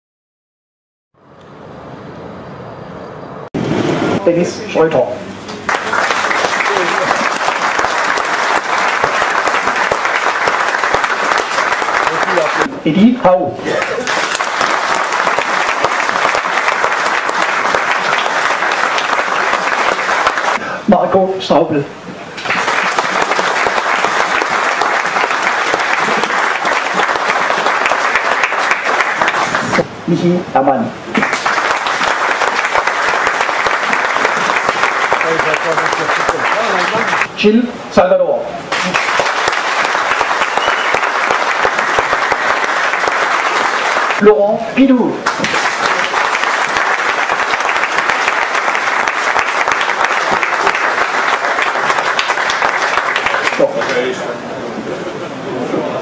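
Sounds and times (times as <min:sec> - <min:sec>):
audience applauding: 0:05.5 - 0:12.7, 0:13.6 - 0:20.6, 0:22.4 - 0:29.9, 0:31.1 - 0:37.3, 0:38.7 - 0:44.4, 0:45.2 - 0:54.2.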